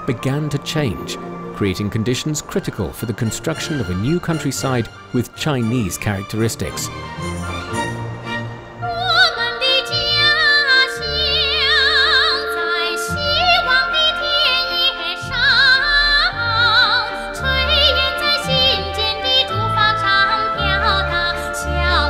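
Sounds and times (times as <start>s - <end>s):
instrumental accompaniment: 0.0s - 22.0s
high solo voice singing: 8.9s - 22.0s.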